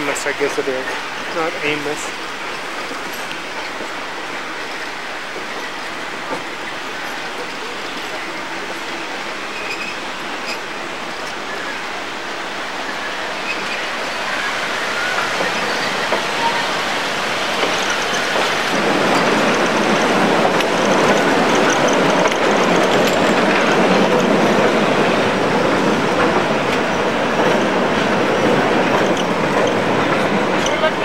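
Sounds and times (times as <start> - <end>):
train wheels on rails: 0.0 - 31.0.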